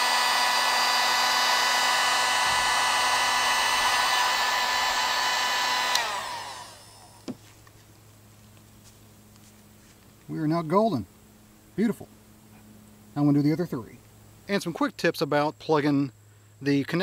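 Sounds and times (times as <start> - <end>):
heat gun fan whine: 0.0 - 8.0.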